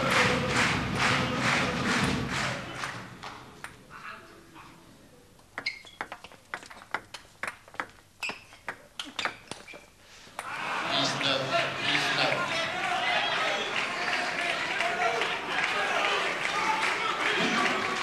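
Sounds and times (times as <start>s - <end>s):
crowd cheering: 0.0s - 3.2s, 10.4s - 18.0s.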